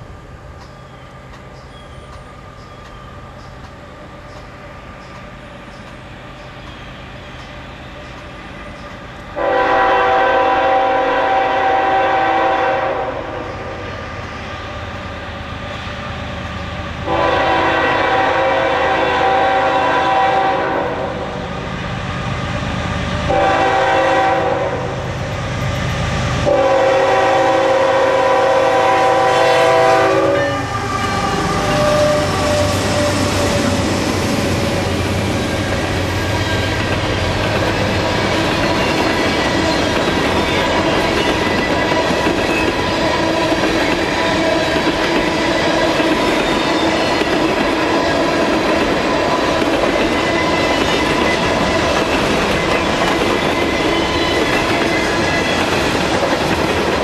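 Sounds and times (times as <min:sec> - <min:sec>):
locomotive engines and wheels rumbling: 0:00.0 - 0:57.0
locomotive air horn blasts: 0:09.4 - 0:13.8, 0:17.0 - 0:21.3, 0:23.3 - 0:25.0, 0:26.4 - 0:33.6.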